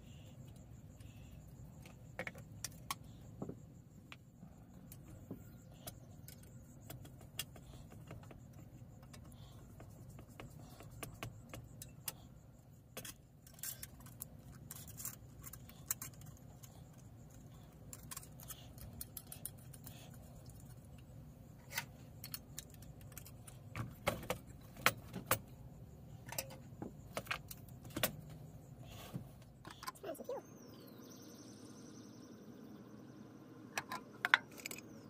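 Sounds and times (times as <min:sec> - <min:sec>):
low steady hum: 0:00.0 - 0:35.0
small metal clicks and clinks: 0:13.0 - 0:21.0, 0:26.1 - 0:28.2.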